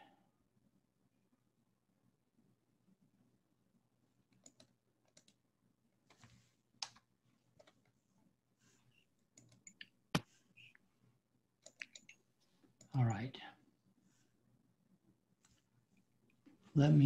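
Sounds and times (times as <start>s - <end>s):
mouse and keyboard clicks: 11.6s - 12.2s.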